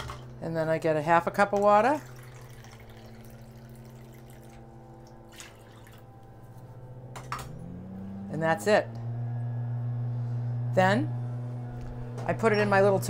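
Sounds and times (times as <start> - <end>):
steady low hum: 0.0 - 13.0
water trickling into a cup: 1.9 - 6.1.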